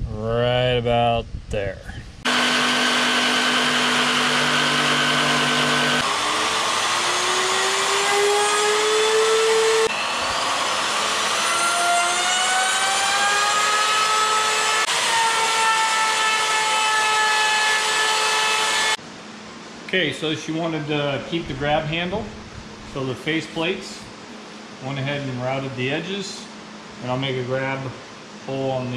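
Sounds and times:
electric wood router whine: 2.2s - 19.0s.

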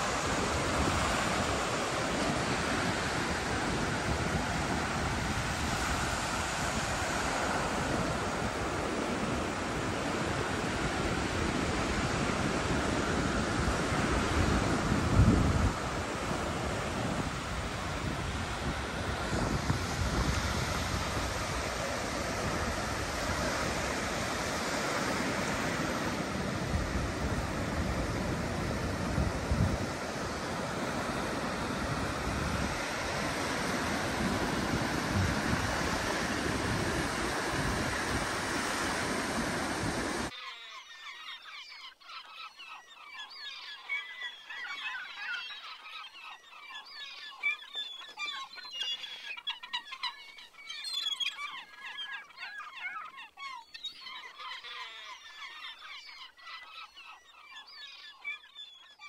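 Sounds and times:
wind noise on microphone: 0.0s - 40.3s
sea surf: 0.0s - 40.4s
flock of birds calling: 15.7s - 59.0s.

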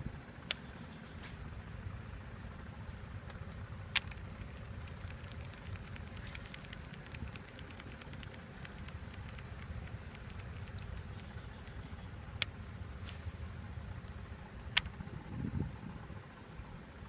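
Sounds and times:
high insect drone: 0.0s - 17.0s
low rumble: 0.0s - 17.0s
sharp clicks: 3.2s - 12.6s, 14.0s - 15.0s.

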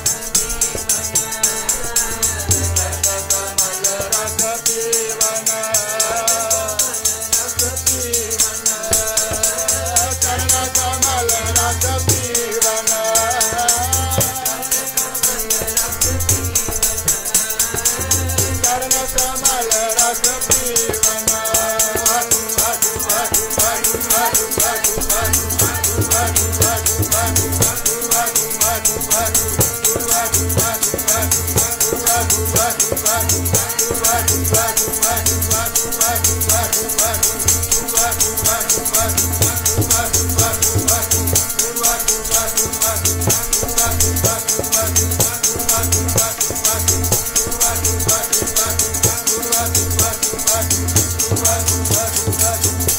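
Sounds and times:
harmonium: 0.0s - 52.9s
low tabla strokes: 0.0s - 52.9s
person singing: 0.5s - 52.9s
hand-shaken percussion rattle: 13.2s - 52.9s.

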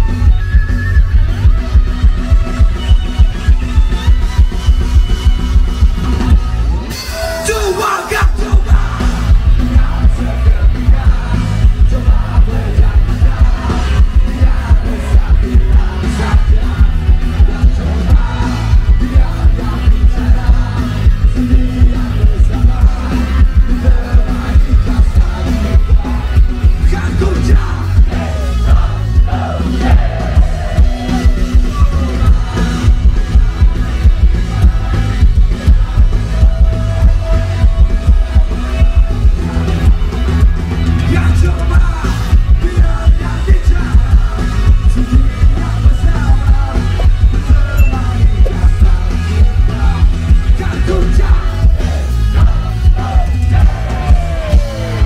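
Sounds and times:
bass guitar: 0.0s - 55.0s
drums: 0.0s - 55.0s
electric guitars: 0.0s - 55.0s
keyboard: 0.0s - 55.0s
person singing: 41.0s - 54.8s.

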